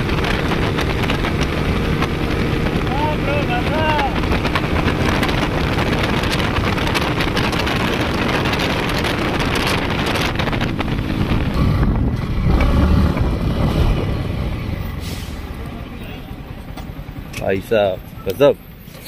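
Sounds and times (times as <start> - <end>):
motorcycle engine at speed: 0.0 - 15.0
wind rushing over microphone: 0.0 - 18.0.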